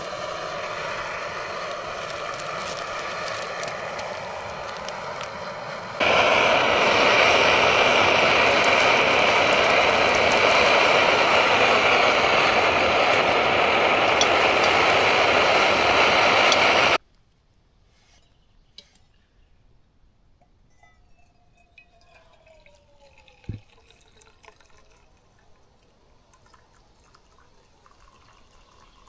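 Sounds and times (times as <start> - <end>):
gas stove burner roaring hiss: 0.0 - 17.0.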